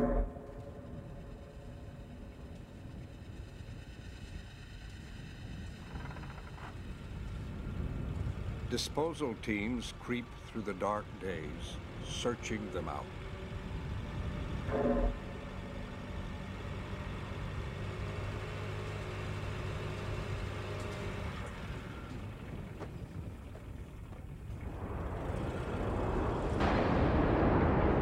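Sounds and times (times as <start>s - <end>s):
broad roar: 0.0s - 1.7s
vehicle engine idling: 0.0s - 26.4s.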